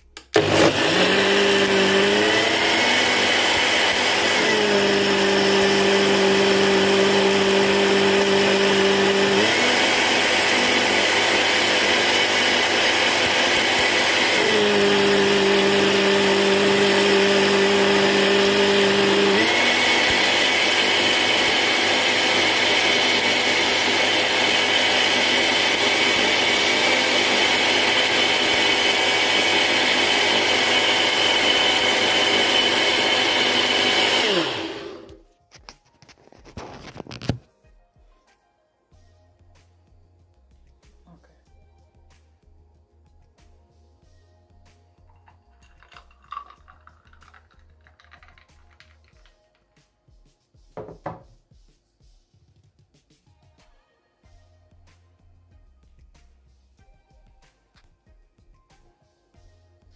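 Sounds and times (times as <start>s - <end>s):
blender motor whirring: 0.2s - 35.2s, 45.6s - 49.4s.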